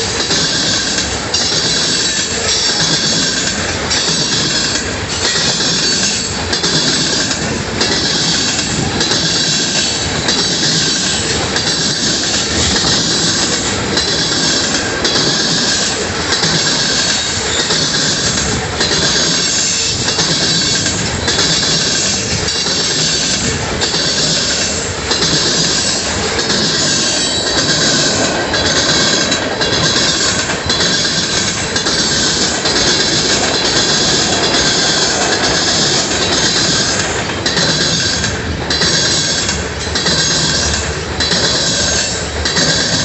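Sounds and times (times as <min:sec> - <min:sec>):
train wheels rumbling on rail: 0:00.0 - 0:43.0.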